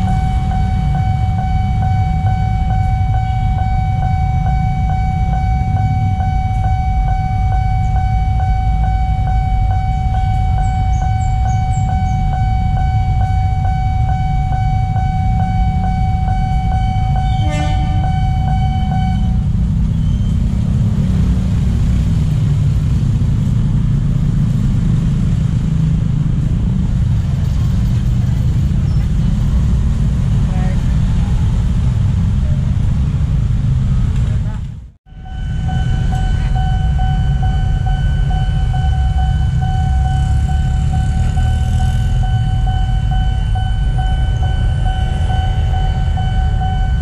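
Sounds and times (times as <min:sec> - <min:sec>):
level crossing warning alarm: 0:00.0 - 0:21.1, 0:35.1 - 0:47.0
rumble of engines and traffic: 0:00.0 - 0:47.0.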